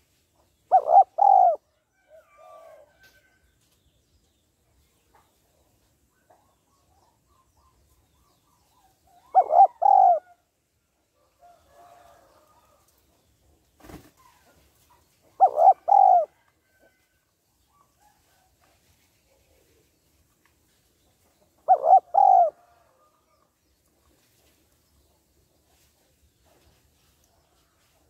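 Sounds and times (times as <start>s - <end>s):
dove cooing: 0.7s - 1.6s, 9.2s - 10.4s, 15.3s - 16.4s, 21.6s - 22.8s.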